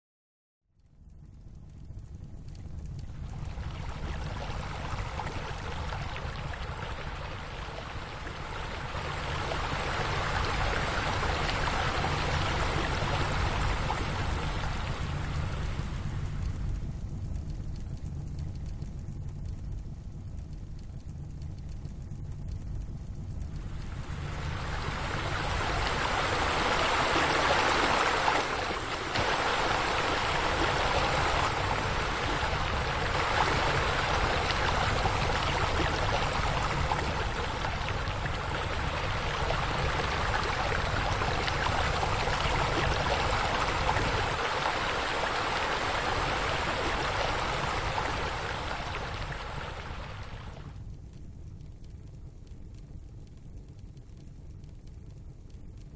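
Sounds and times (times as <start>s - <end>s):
low steady hum: 0.7s - 55.9s
fountain jets splashing: 3.1s - 16.2s, 23.7s - 50.7s.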